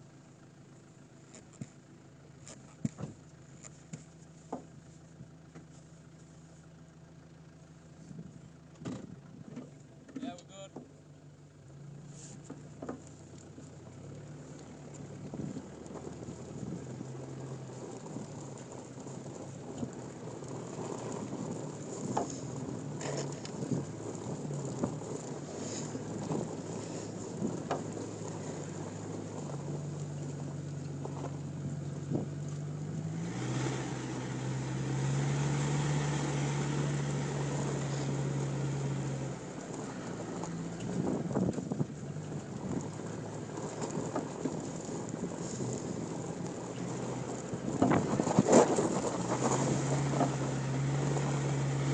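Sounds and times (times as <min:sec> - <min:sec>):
car engine revving: 0:00.7 - 0:51.9
hiss of wind and snow: 0:12.0 - 0:51.9.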